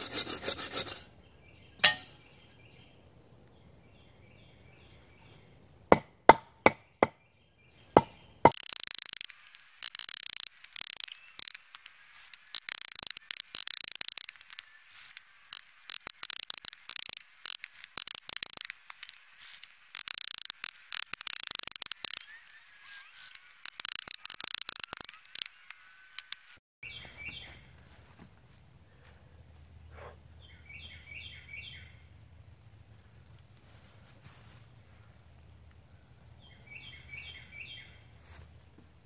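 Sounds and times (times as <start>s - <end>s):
bow saw rasping through log: 0.0s - 1.1s
birds chirping: 6.7s - 27.7s.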